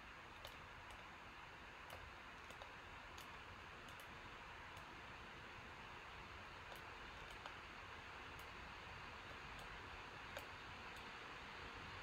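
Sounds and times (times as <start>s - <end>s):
computer cooling fan hiss: 0.0s - 12.0s
mouse and keyboard clicks: 0.4s - 1.1s, 1.9s - 4.1s, 6.7s - 7.6s, 9.3s - 11.1s.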